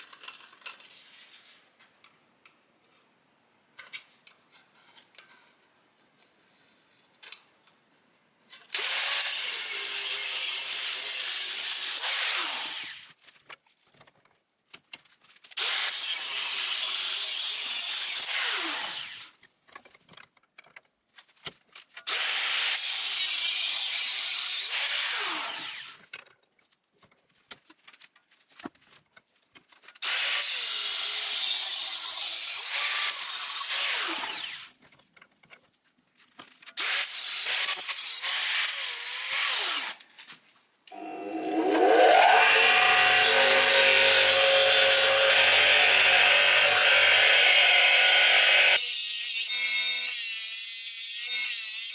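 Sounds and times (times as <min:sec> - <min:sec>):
power tool working steel plate: 0:40.9 - 0:50.3
louder machine spinning: 0:41.0 - 0:48.8.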